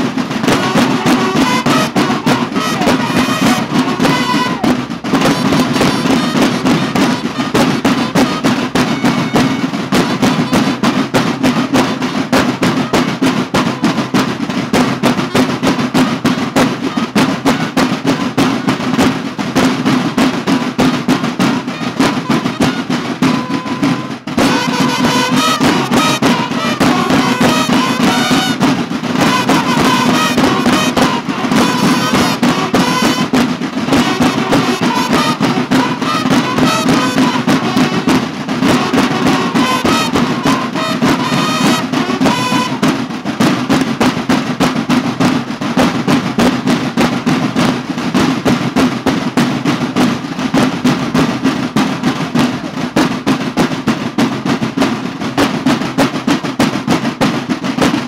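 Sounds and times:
bugles sounding a call: 0:00.0 - 0:43.0
snare drums playing march beat: 0:00.0 - 0:58.0.

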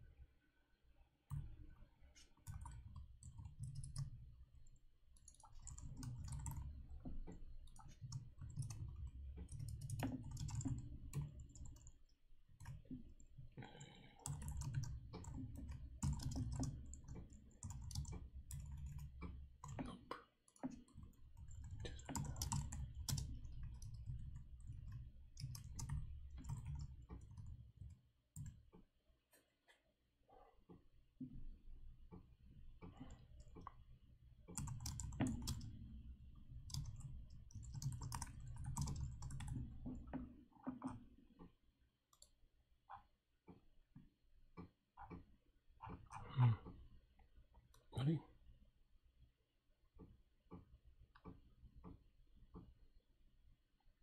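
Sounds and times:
keyboard typing: 0:02.1 - 0:12.0, 0:12.6 - 0:28.6, 0:34.5 - 0:35.9, 0:36.6 - 0:41.0.

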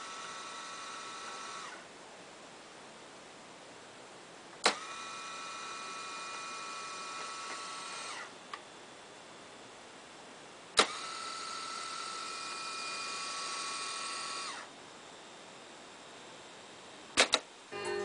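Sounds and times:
tape deck motor whine: 0:00.0 - 0:01.9, 0:04.6 - 0:08.8, 0:10.8 - 0:14.7, 0:17.2 - 0:18.0
sharp mechanical clack: 0:17.2 - 0:17.5.

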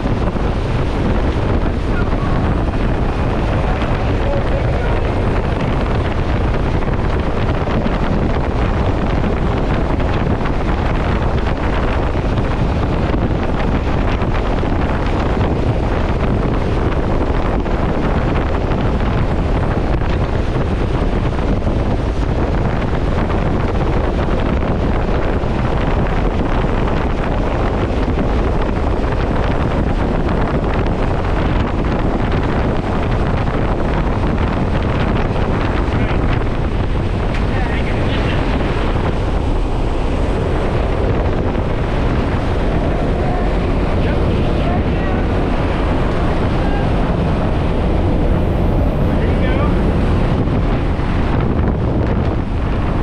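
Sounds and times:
aircraft engine noise: 0:00.0 - 0:53.0
wind buffeting microphone: 0:00.0 - 0:53.0
wind rushing: 0:00.0 - 0:53.0.

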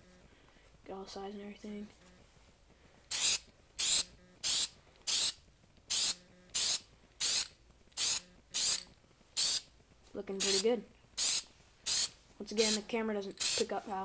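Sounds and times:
spray paint can hissing: 0:03.1 - 0:09.7, 0:10.4 - 0:12.8, 0:13.4 - 0:13.8.

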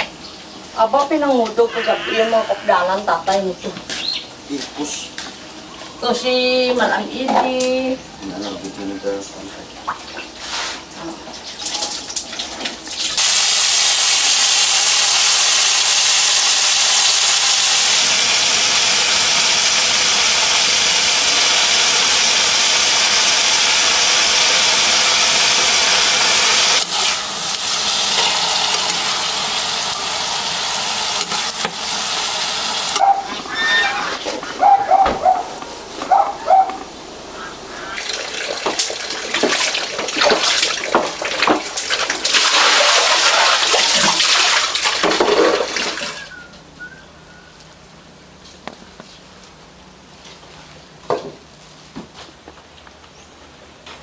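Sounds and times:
tap water gushing into sink: 0:09.7 - 0:33.5, 0:37.9 - 0:46.3
water splashing: 0:37.4 - 0:46.3.

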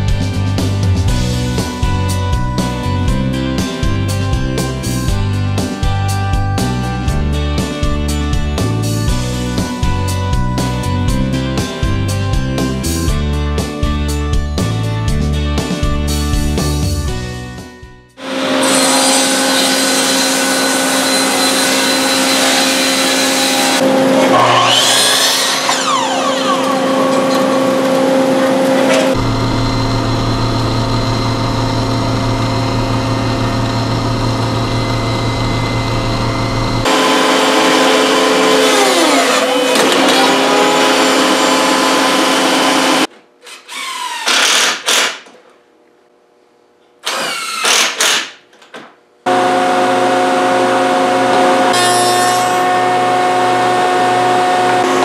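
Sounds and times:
table saw ripping wood: 0:18.2 - 0:30.0, 0:36.8 - 0:45.4, 0:47.0 - 0:48.4, 0:49.3 - 0:55.0
cordless drill driving screws: 0:43.5 - 0:45.2, 0:47.0 - 0:48.3.

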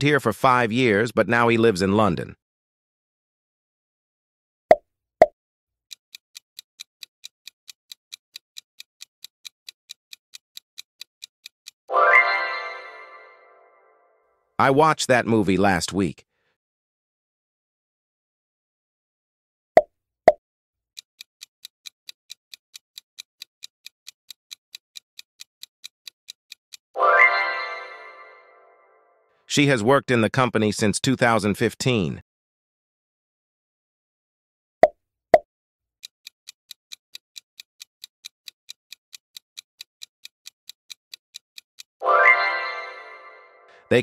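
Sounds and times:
clock ticking: 0:05.9 - 0:11.9, 0:21.0 - 0:27.0, 0:36.0 - 0:42.0.

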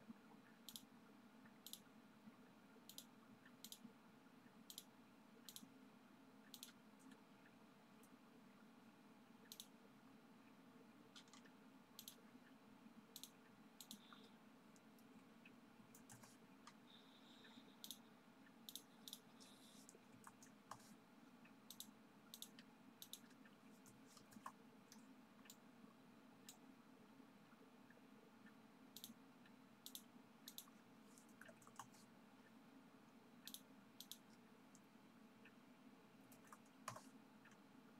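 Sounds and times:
low steady room hum: 0:00.0 - 0:37.9
computer mouse clicks: 0:00.5 - 0:00.9, 0:01.5 - 0:01.9, 0:02.8 - 0:03.9, 0:04.6 - 0:05.7, 0:06.4 - 0:07.2, 0:09.5 - 0:09.8, 0:11.1 - 0:12.3, 0:13.1 - 0:15.1, 0:15.9 - 0:21.0, 0:21.7 - 0:25.6, 0:26.4 - 0:26.6, 0:28.9 - 0:32.1, 0:33.4 - 0:35.6, 0:36.3 - 0:37.6.

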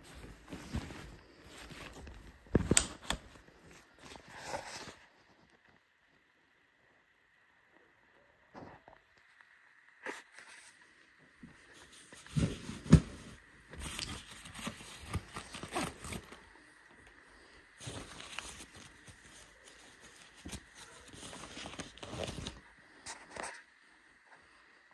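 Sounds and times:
handling rustling and scraping: 0:00.0 - 0:05.8, 0:10.0 - 0:16.8, 0:17.4 - 0:23.7.

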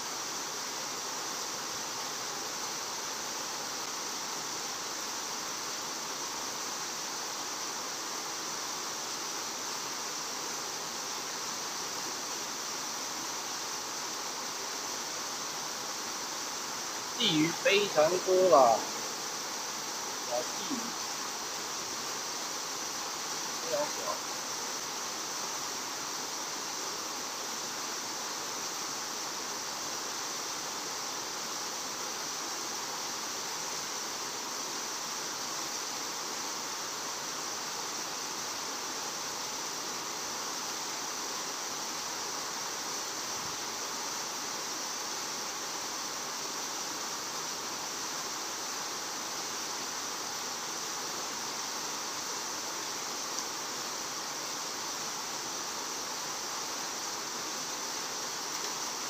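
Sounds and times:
steady outdoor hiss: 0:00.0 - 0:59.0
faint click: 0:53.3 - 0:53.5, 0:58.5 - 0:58.8.

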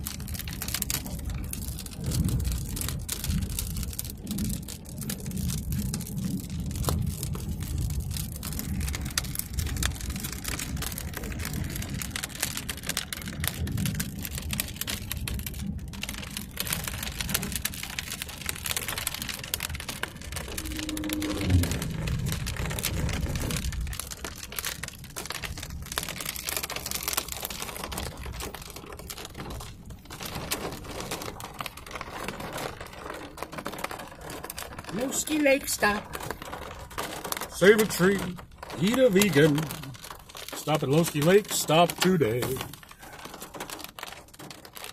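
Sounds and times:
low rumble of moving vehicle: 0:00.0 - 0:37.6
rain pattering on a car: 0:00.0 - 0:44.9
low falling tone: 0:20.2 - 0:22.6.

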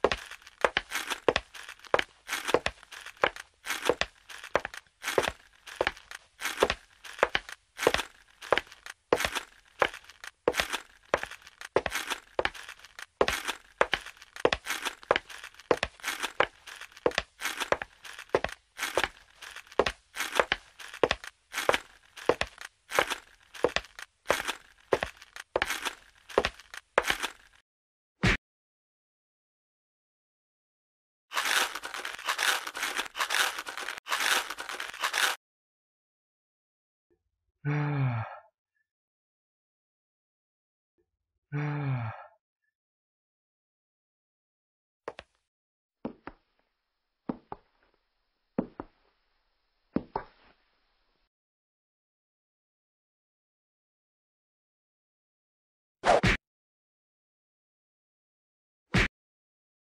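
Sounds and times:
crackling and crinkling: 0:00.0 - 0:27.6, 0:31.3 - 0:35.4.

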